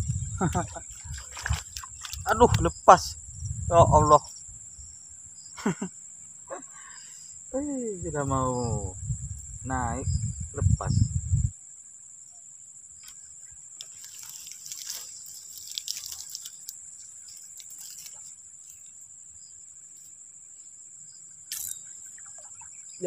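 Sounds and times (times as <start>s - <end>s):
insects droning: 0.0s - 23.0s
crackling of hands in dry reeds: 13.8s - 18.8s.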